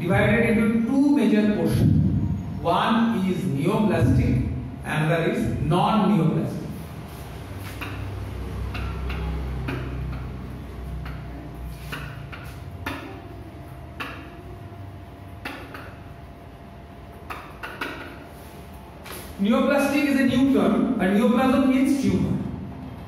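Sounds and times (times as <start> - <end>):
low steady hum: 0.0 - 23.0
marker writing on whiteboard: 6.7 - 14.6, 15.2 - 16.2, 17.1 - 20.0.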